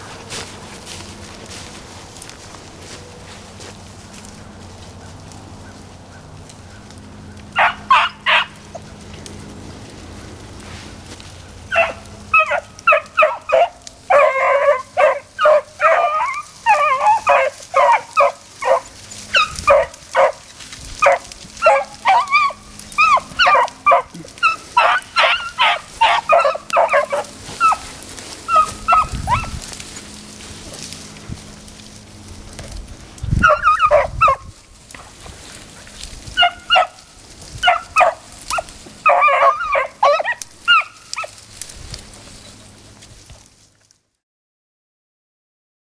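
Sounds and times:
beagles baying: 0.0 - 42.8
dogs yelping: 4.4 - 9.4, 11.2 - 41.5
dogs barking rapidly: 4.9 - 9.2, 11.3 - 31.6, 32.8 - 41.4.

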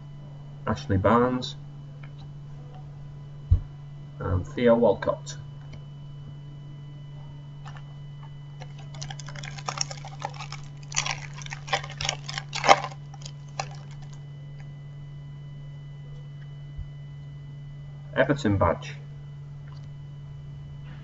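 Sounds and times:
steady low hum: 0.0 - 21.0
foil wrapper tearing and crumpling: 8.6 - 14.2.

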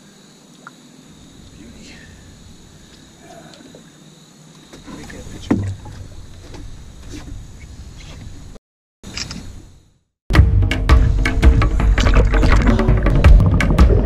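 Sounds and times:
low boat rumble: 4.8 - 8.6, 10.9 - 14.0.

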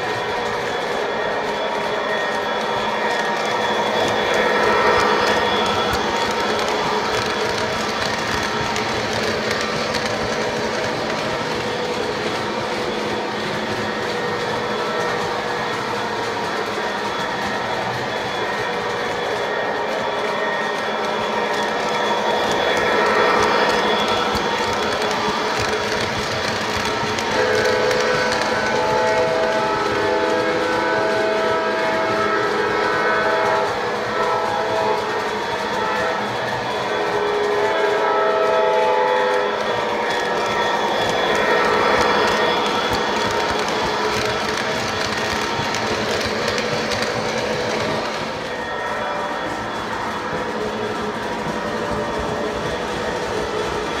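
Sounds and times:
model train motors whirring: 0.0 - 48.8
wheels rumbling on rails: 0.0 - 54.0.

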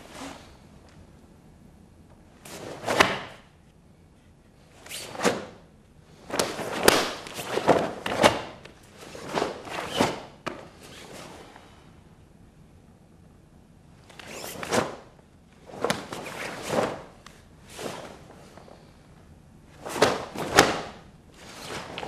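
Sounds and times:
uniforms swishing and snapping: 6.3 - 11.3, 14.1 - 15.0, 15.6 - 18.7, 19.8 - 22.0.

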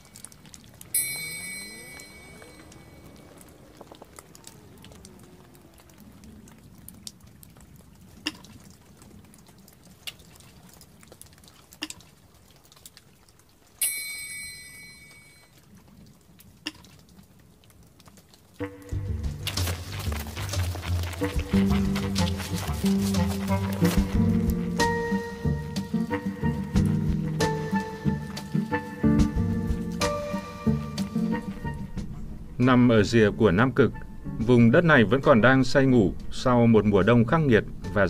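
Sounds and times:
water drops plinking: 0.0 - 19.6, 22.6 - 31.9
ringing chime-like note: 0.9 - 3.2, 13.8 - 15.5.

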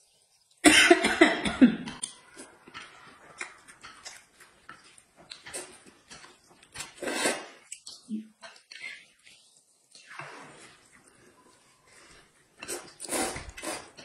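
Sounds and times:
chewing mouth clicks and lip smacks: 1.9 - 7.0, 7.6 - 10.2
noodle slurp: 6.6 - 9.3, 12.6 - 14.0.

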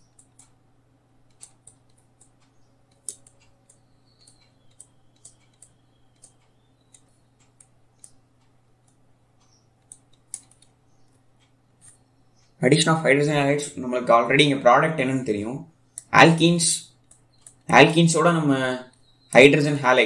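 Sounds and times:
stylus tapping tablet screen: 0.0 - 0.6, 1.2 - 12.5, 16.9 - 18.0
low steady hum: 0.0 - 20.0.

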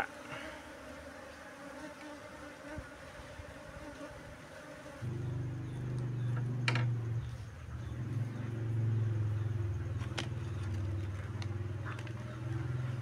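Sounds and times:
honeybee colony buzzing: 0.0 - 13.0
low steady hum: 5.0 - 13.0.

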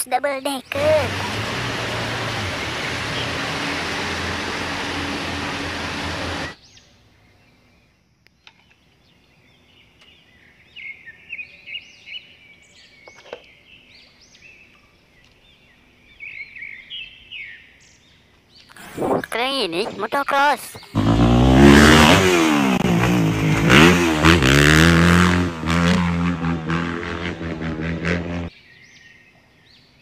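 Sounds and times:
street noise: 0.0 - 6.6, 18.7 - 28.5
birds chirping: 0.1 - 25.8
bus engine running: 0.7 - 6.6, 20.9 - 28.5.

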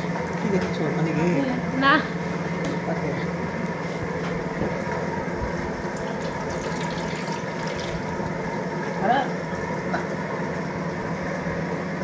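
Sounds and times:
steady low hum: 0.0 - 12.0
water splashing into metal bowl: 5.9 - 8.1
hands being rinsed: 5.9 - 8.3.

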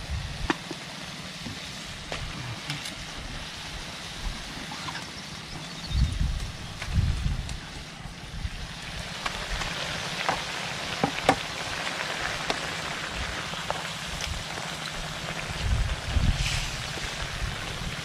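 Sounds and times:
fish sizzling in a wok: 0.0 - 18.0
pops and crackles: 9.1 - 15.8.

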